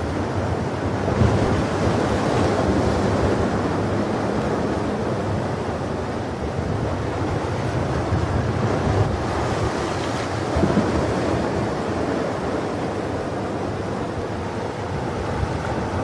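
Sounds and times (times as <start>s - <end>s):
waves breaking on shore: 0.0s - 16.0s.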